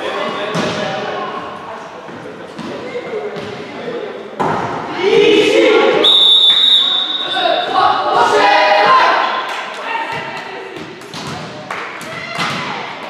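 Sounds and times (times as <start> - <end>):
players calling and shouting: 2.2 - 13.0
referee whistle: 6.0 - 7.6.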